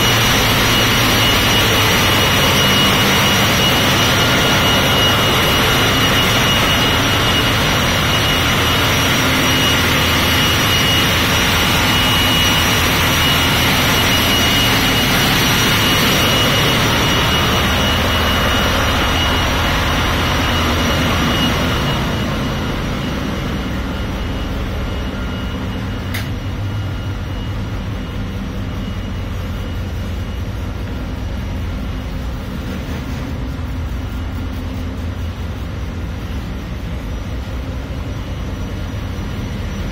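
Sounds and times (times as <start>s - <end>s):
engine room machinery: 0.0s - 39.9s
high steady whine: 0.0s - 39.9s
single click: 26.1s - 26.4s.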